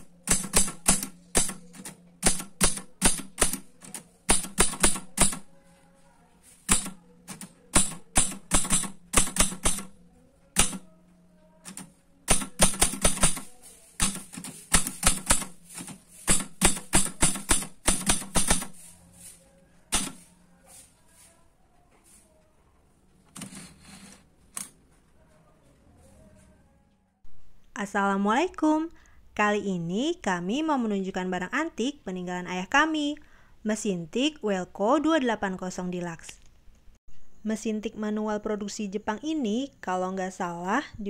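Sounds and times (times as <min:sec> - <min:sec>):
manual typewriter typing: 0:00.0 - 0:05.5, 0:06.6 - 0:09.9, 0:10.6 - 0:10.8, 0:11.6 - 0:18.8, 0:19.9 - 0:20.3.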